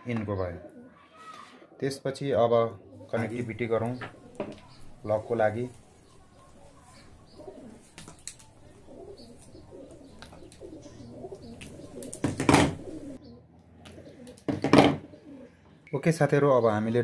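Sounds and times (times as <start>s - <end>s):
pigeons cooing: 0.1s - 15.8s.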